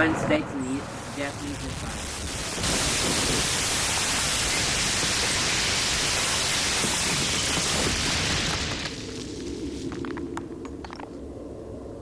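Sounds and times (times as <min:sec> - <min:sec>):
loud static hiss: 0:00.4 - 0:09.9.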